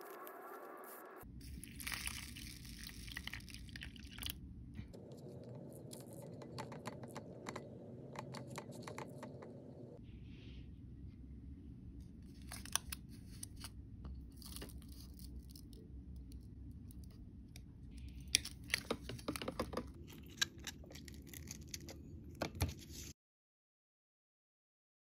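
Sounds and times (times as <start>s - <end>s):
plastic capsule and granules crunching: 0.0s - 4.4s, 18.3s - 22.0s
steady low hum: 0.6s - 18.8s.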